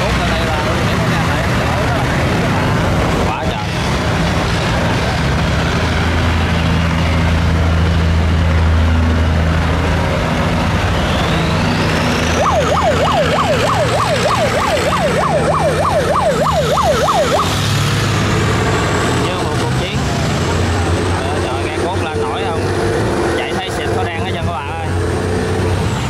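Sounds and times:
boat engines running: 0:00.0 - 0:26.0
electronic siren yelping: 0:10.8 - 0:17.8.

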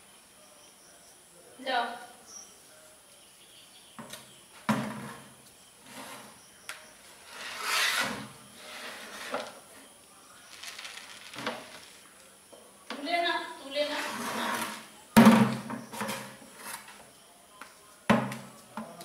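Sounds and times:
plastic can scraping on concrete: 0:04.7 - 0:06.4, 0:07.2 - 0:09.6, 0:10.5 - 0:12.0, 0:13.8 - 0:17.0
plastic can knocks: 0:15.2 - 0:15.8.

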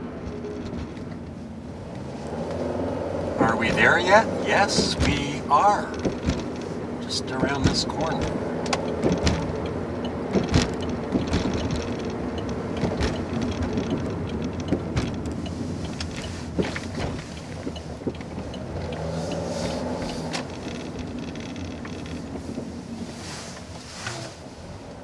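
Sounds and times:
car engine and tyre hum: 0:00.0 - 0:25.0
small clicks and knocks: 0:05.9 - 0:19.4, 0:20.0 - 0:22.4.

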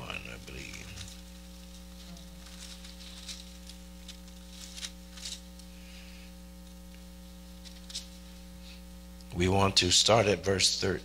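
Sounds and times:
electrical mains hum: 0:00.0 - 0:11.0
pages being turned: 0:00.1 - 0:05.7, 0:06.6 - 0:08.2.

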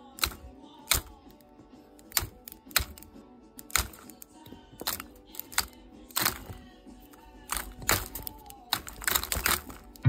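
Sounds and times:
quiet background music: 0:00.0 - 0:10.0
sharp clicks and taps: 0:00.2 - 0:01.4, 0:02.0 - 0:06.6.

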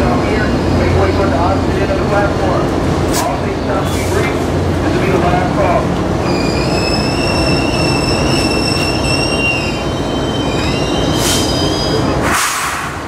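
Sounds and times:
low rumble of rail traffic: 0:00.0 - 0:13.0
train wheels squealing: 0:06.2 - 0:12.2.

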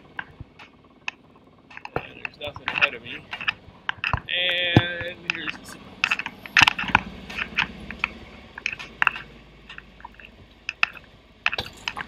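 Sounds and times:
camera handling clicks and knocks: 0:01.7 - 0:04.3.

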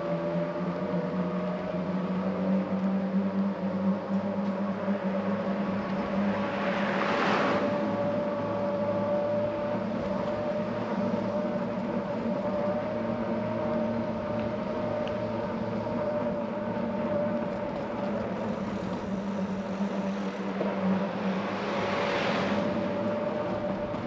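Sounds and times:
traffic engine hum: 0:00.0 - 0:24.0
car passing: 0:04.8 - 0:09.0, 0:18.4 - 0:24.0.

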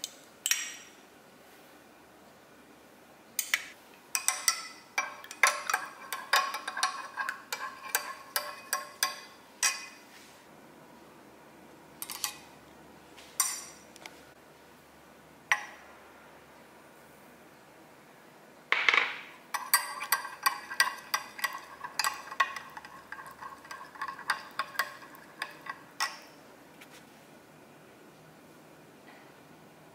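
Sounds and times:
metal spoon clinking glass jug: 0:04.1 - 0:10.0, 0:19.5 - 0:26.4.

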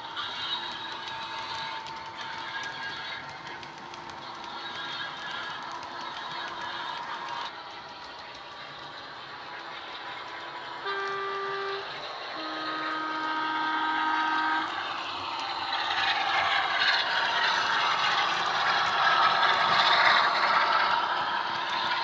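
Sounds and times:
model locomotive running noise: 0:00.0 - 0:22.0
two-tone locomotive horn: 0:10.8 - 0:15.0.

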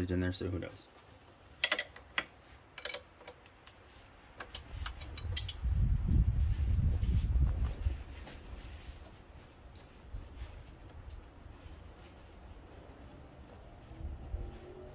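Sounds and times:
wrenches clinking on metal fitting: 0:01.6 - 0:03.5, 0:04.5 - 0:05.6.

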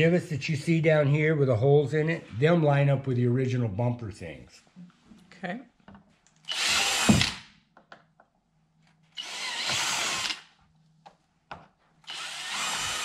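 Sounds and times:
cordless drill drilling: 0:06.5 - 0:07.4, 0:09.2 - 0:10.4, 0:12.1 - 0:13.0.

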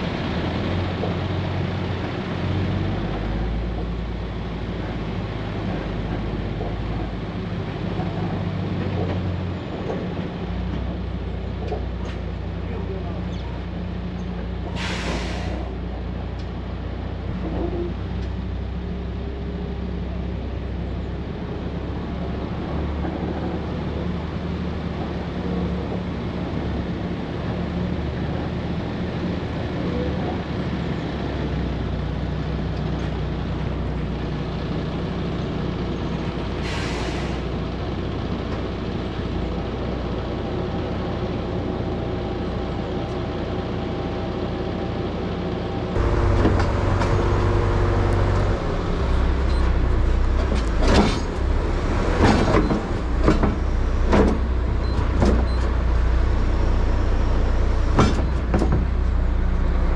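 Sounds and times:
truck engine running: 0:00.0 - 0:59.9
air hiss: 0:14.8 - 0:15.7
sharp knocks and clanks: 0:46.0 - 0:56.1, 0:57.8 - 0:59.2.

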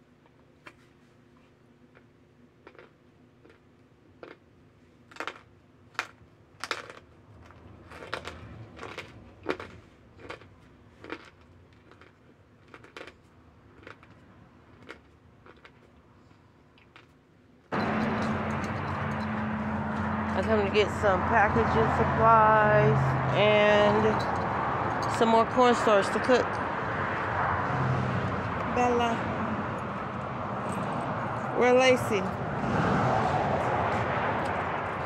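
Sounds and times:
crunchy chewing: 0:01.9 - 0:17.2.

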